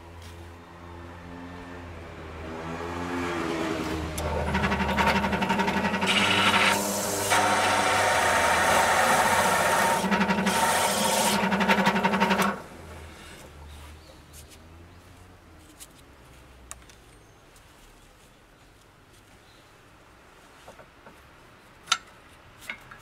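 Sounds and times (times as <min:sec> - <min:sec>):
cutter rasping into wood: 0:04.2 - 0:12.6
drill press motor hum: 0:04.2 - 0:12.7.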